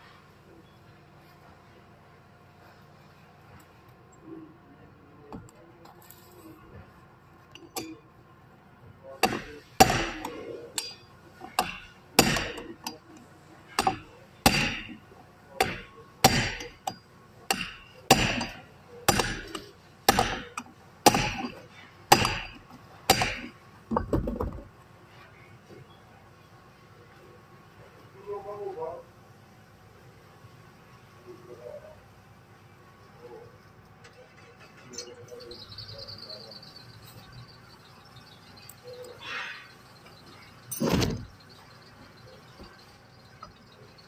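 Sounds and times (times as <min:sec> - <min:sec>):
hammer striking metal: 0:07.6 - 0:08.0, 0:09.2 - 0:15.0, 0:15.6 - 0:23.5.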